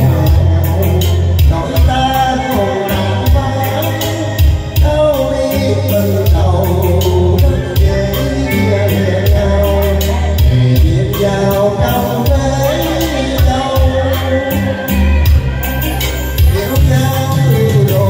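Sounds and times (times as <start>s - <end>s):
backing music with bass and beat: 0.0s - 18.0s
man singing into microphone: 0.0s - 18.0s.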